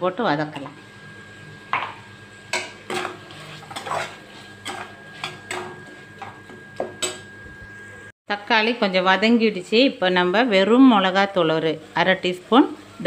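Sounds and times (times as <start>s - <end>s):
ladle scraping a metal pan: 2.6s - 5.7s.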